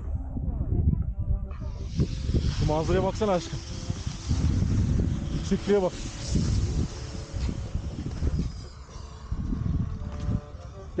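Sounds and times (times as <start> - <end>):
wind buffeting microphone: 0.0 - 11.0
skis sliding over snow: 2.0 - 8.8.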